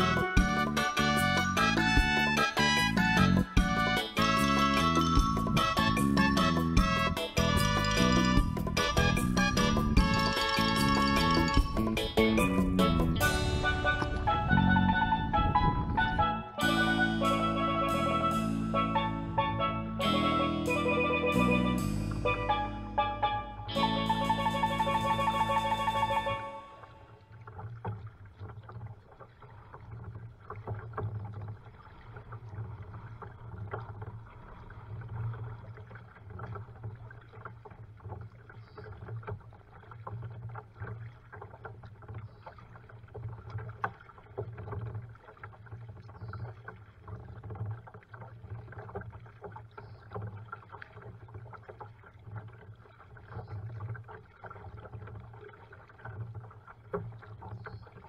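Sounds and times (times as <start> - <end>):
paddle splashing water: 0.0 - 58.0
light clicks and drips: 27.2 - 58.0.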